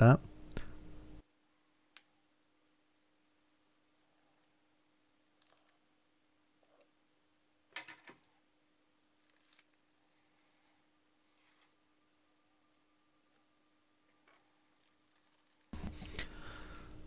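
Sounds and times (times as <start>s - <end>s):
plastic bag crinkling: 14.7s - 15.8s.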